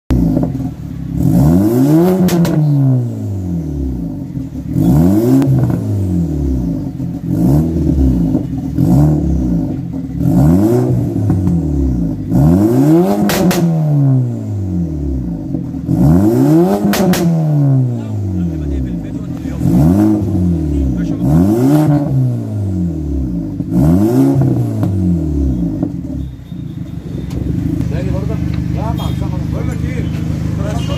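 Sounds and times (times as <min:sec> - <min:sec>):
car engine revving: 0:00.1 - 0:30.9
exhaust pops and crackles: 0:02.2 - 0:02.8, 0:13.2 - 0:13.8, 0:16.8 - 0:17.4, 0:27.2 - 0:30.9.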